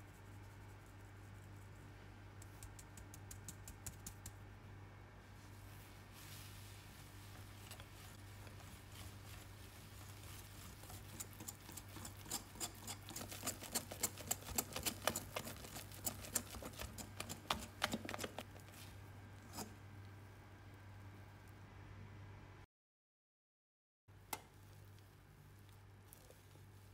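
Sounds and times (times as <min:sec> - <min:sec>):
steady low hum: 0:00.0 - 0:22.7
whisk clicking against glass bowl: 0:10.0 - 0:18.4.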